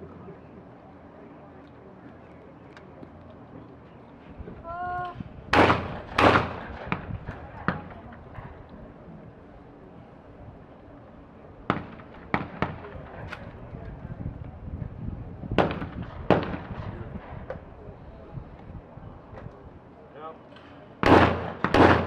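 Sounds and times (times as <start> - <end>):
shotgun shots: 5.5 - 7.9, 15.6 - 17.4, 21.0 - 22.0.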